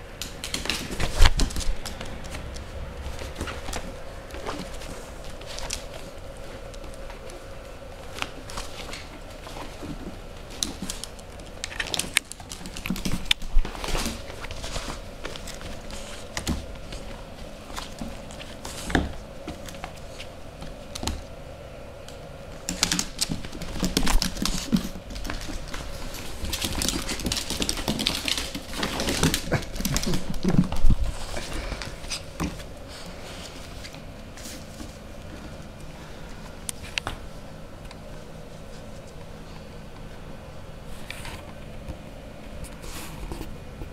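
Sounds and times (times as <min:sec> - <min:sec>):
claws clicking on wooden floor: 0:00.2 - 0:21.4, 0:22.0 - 0:32.8.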